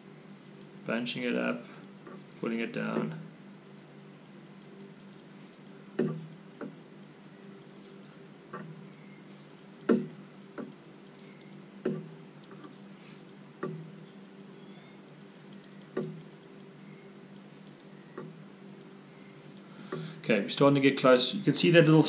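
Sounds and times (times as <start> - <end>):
low steady hum: 0.0 - 22.0
sharp clicks and taps: 3.8 - 14.5, 15.2 - 20.2.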